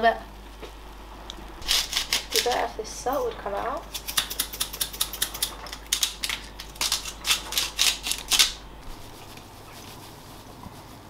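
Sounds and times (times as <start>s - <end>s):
salt mill clicking and crunching: 1.6s - 2.6s, 3.9s - 8.6s.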